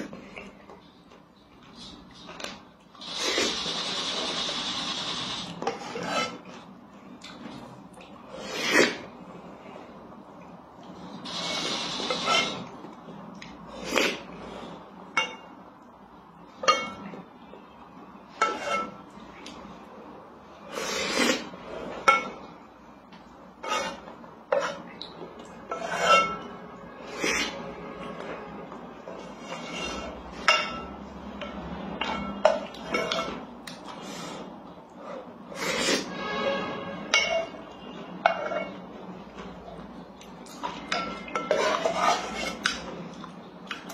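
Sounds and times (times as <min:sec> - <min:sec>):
slurping and eating porridge: 0:05.2 - 0:10.0, 0:10.8 - 0:14.8, 0:20.5 - 0:22.1, 0:23.6 - 0:28.4, 0:29.0 - 0:30.5, 0:32.7 - 0:36.2, 0:40.2 - 0:43.9
wooden spoon scraping metal pot: 0:05.6 - 0:06.7, 0:11.2 - 0:12.7, 0:18.4 - 0:19.0, 0:23.6 - 0:24.9, 0:25.6 - 0:31.0, 0:40.7 - 0:43.1.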